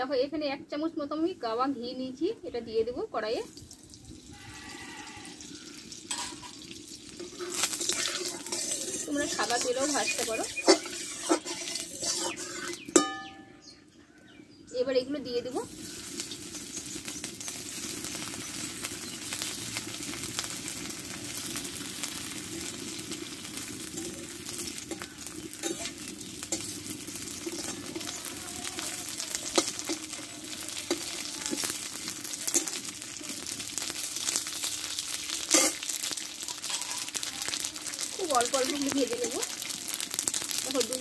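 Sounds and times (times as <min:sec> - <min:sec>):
food sizzling in oil: 0:00.0 - 0:13.7, 0:14.7 - 0:41.0
spatula scraping pan: 0:07.2 - 0:13.2, 0:23.9 - 0:33.2, 0:35.3 - 0:37.7
sharp knock on pan: 0:12.9 - 0:13.4.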